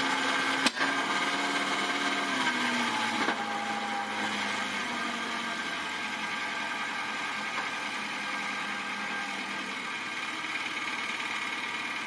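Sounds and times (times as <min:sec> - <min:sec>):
engine idling: 0:05.7 - 0:12.0.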